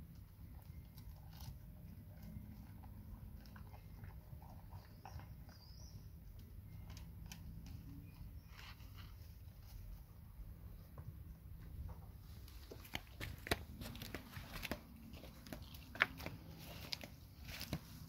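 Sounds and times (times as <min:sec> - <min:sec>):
dog chewing and crunching: 0:00.0 - 0:07.9, 0:12.7 - 0:18.0.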